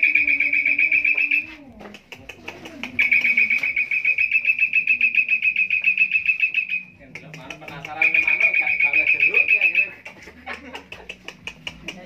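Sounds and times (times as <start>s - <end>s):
starling calling in high trill: 3.0s - 6.9s, 8.0s - 10.0s.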